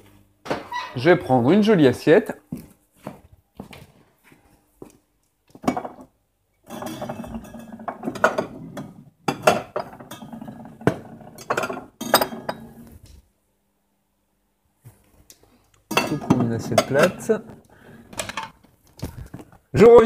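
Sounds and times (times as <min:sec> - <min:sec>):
crockery clinking and clattering: 0:05.6 - 0:12.8, 0:15.9 - 0:17.5, 0:18.1 - 0:18.6.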